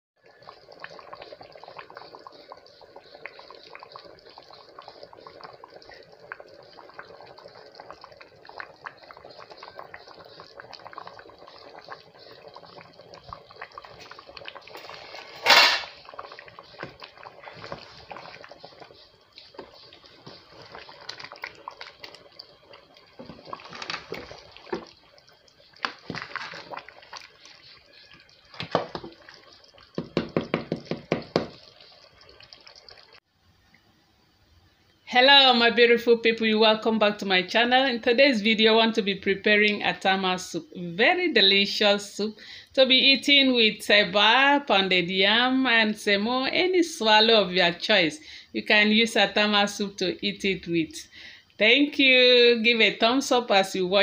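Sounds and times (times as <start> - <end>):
soup bubbling in pot: 0.2 - 33.8, 34.9 - 54.0
wooden spoon stirring in pot: 0.3 - 15.4, 16.0 - 33.1.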